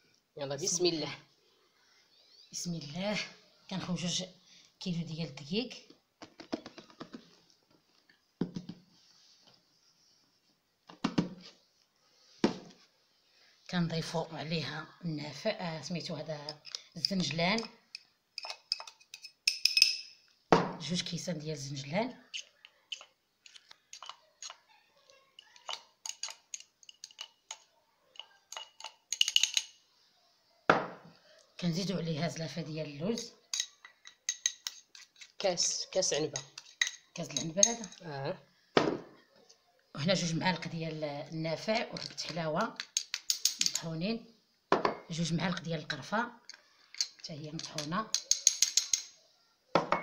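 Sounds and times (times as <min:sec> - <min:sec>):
utensil clinking on ceramic plate: 0:16.5 - 0:20.2, 0:22.3 - 0:24.6, 0:25.4 - 0:29.8, 0:33.2 - 0:35.4, 0:36.2 - 0:38.0, 0:41.7 - 0:43.9, 0:46.5 - 0:49.2.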